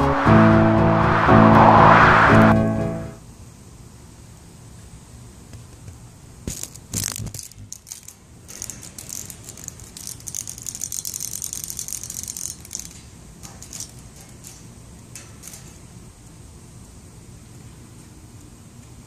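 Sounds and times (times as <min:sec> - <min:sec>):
cicada ratcheting rattle: 0:06.6 - 0:14.7.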